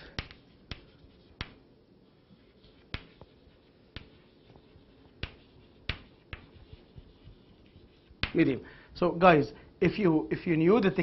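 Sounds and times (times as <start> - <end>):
chalk clicking on blackboard: 0.0 - 8.5.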